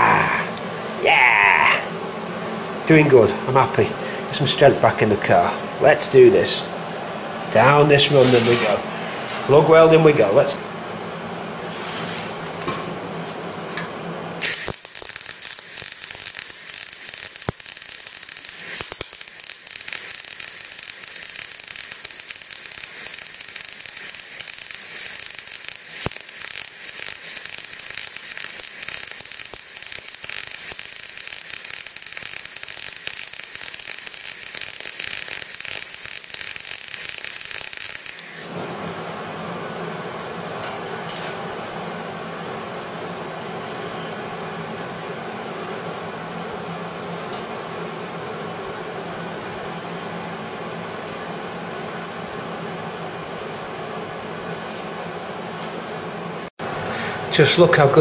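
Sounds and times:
welder arc crackling and hissing: 7.6 - 8.9, 13.5 - 39.0.

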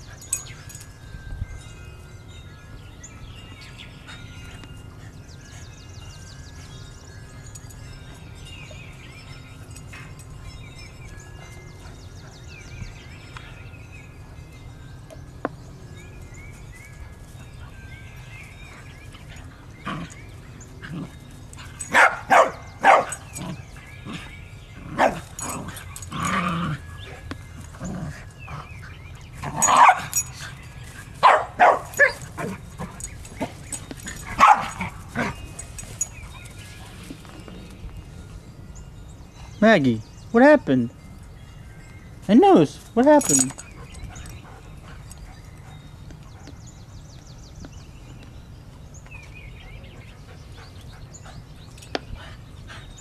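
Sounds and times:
dogs barking: 20.8 - 28.7, 29.4 - 37.1.

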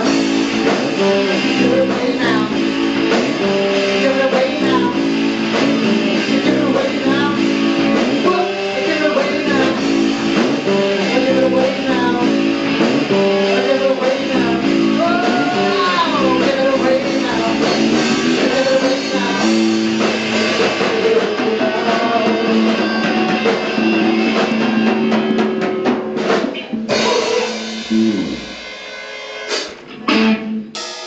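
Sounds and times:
band playing live: 0.0 - 31.0
struck notes: 14.4 - 31.0.

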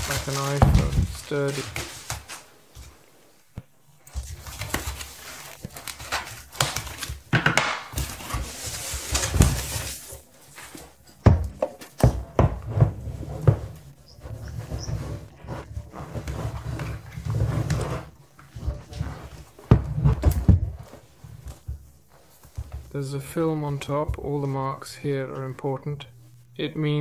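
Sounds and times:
foam sheet rustling: 0.0 - 3.0, 8.0 - 11.0.

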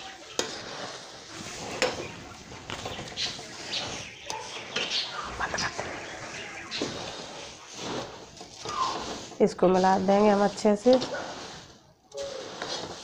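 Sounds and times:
puffed rice rustling: 0.0 - 13.0
spoon scraping metal pan: 4.0 - 13.0.

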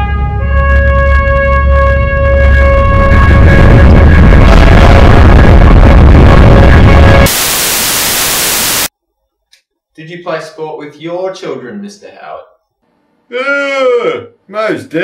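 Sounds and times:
rushing roar with deep rumble: 1.6 - 7.5
tv static hiss: 4.7 - 8.9.

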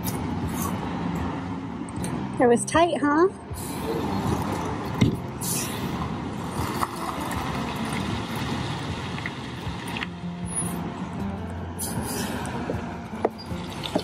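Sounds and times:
heavy truck engine running: 0.0 - 14.0.

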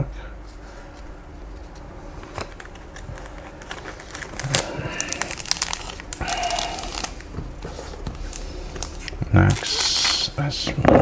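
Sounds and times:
foil wrapper crinkling: 2.2 - 10.4.

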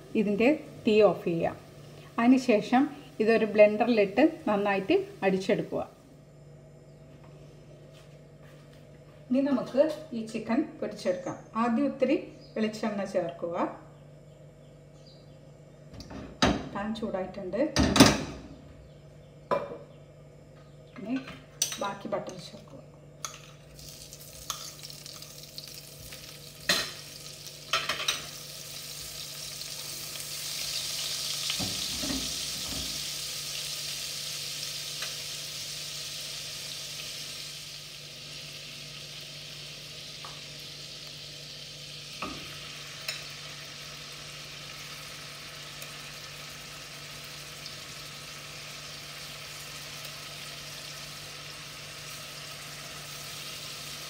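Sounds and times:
butter sizzling in frying pan: 23.7 - 54.0.

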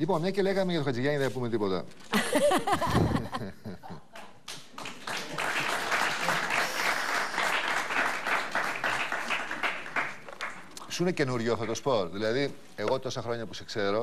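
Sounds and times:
audience applauding: 4.2 - 10.8.

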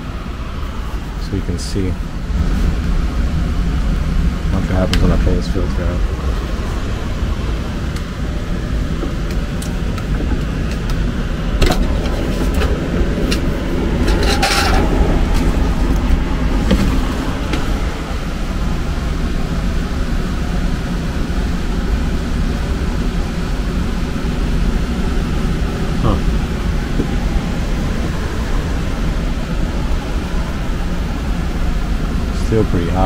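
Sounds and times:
blower rushing air: 0.0 - 33.0
filter knocking and scraping: 8.9 - 17.9.

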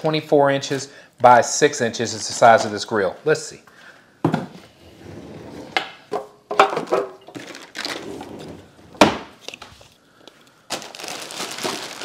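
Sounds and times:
plastic sleeve crinkling: 7.3 - 8.0, 9.4 - 12.0.

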